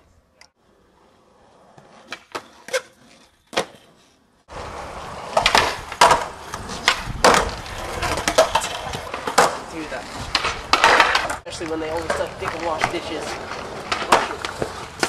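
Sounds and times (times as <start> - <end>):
skateboard wheels rolling on concrete: 0.0 - 15.0
skateboard clacking on ledge: 10.3 - 15.0.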